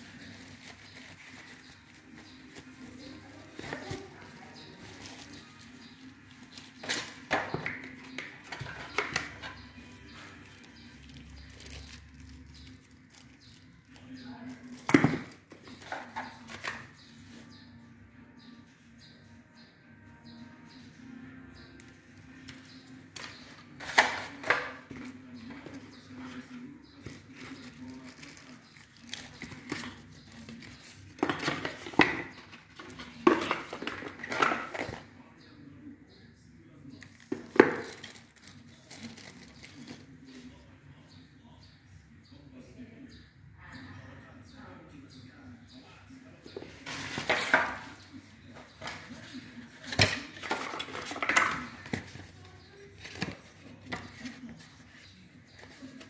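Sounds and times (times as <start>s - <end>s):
plastic wrap crinkling: 0.0s - 7.3s, 10.2s - 16.7s, 27.0s - 35.0s, 37.2s - 40.1s
plastic and cardboard rustling: 0.0s - 17.4s, 22.5s - 35.1s, 37.0s - 40.5s, 46.5s - 56.0s.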